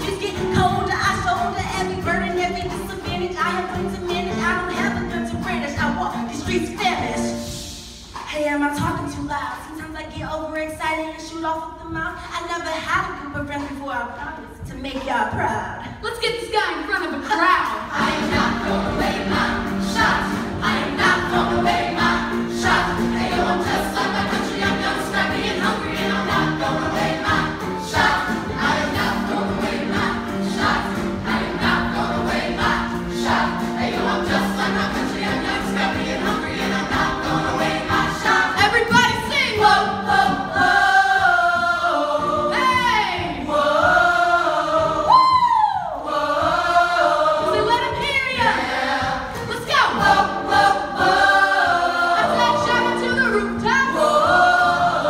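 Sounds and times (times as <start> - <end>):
ensemble singing show tune: 17.8 - 55.0.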